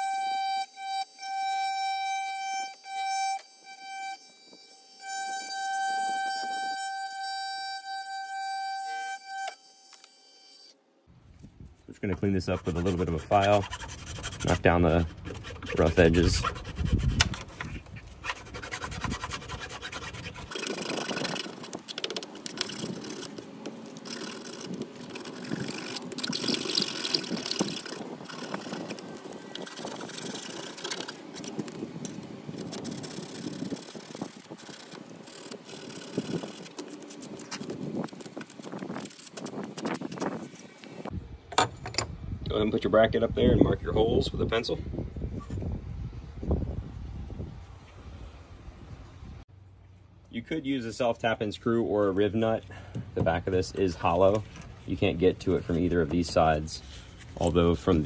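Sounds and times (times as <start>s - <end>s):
rotary tool whining cutting plastic: 0.0s - 10.8s, 12.6s - 41.2s
file scraping plastic edge: 12.4s - 41.0s.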